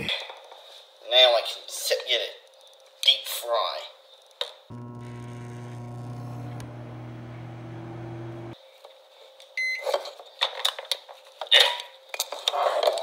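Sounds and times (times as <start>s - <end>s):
microwave oven humming: 4.7s - 8.6s.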